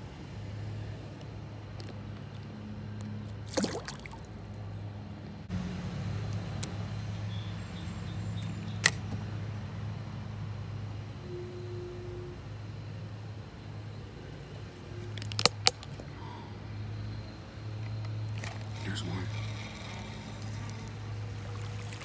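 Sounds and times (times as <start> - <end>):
steady low hum: 0.0 - 22.0
water splashing and trickling: 3.3 - 5.1, 17.8 - 22.0.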